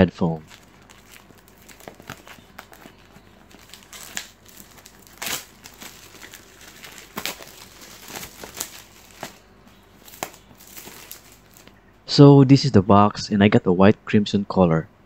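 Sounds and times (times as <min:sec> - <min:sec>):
plastic wrap crinkling: 0:00.4 - 0:11.8.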